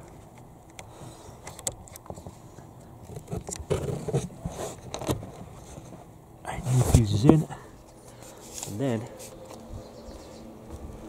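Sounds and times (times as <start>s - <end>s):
small scrapes and rustling: 2.0s - 9.7s.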